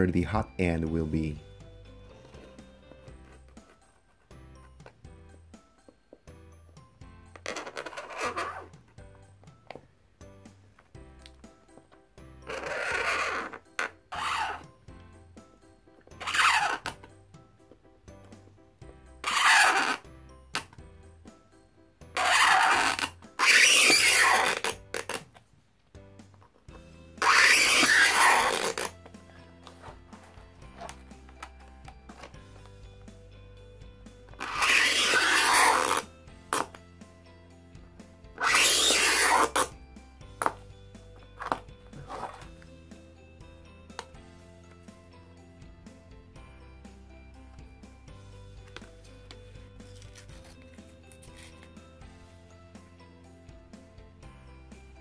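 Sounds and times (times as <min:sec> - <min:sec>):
background music: 0:00.0 - 0:55.0
utility knife scoring acrylic: 0:22.2 - 0:25.2, 0:27.2 - 0:28.9, 0:34.4 - 0:36.7, 0:38.4 - 0:39.7
knife blade scraping acrylic: 0:34.4 - 0:36.7.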